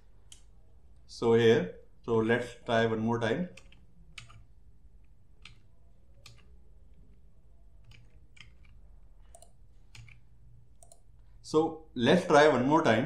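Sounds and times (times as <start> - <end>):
computer clicks: 3.5 - 7.2, 7.8 - 11.1.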